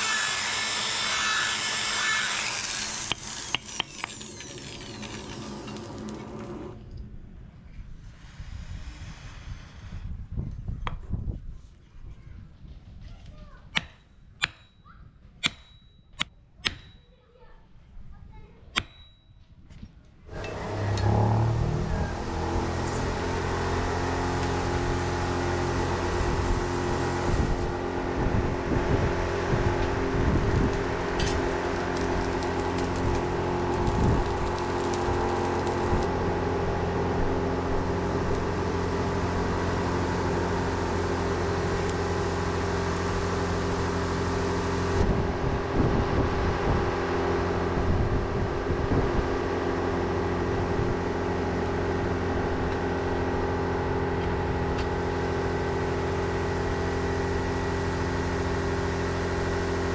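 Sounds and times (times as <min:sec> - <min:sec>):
electric motor humming: 0:00.0 - 0:06.8, 0:20.3 - 0:59.9.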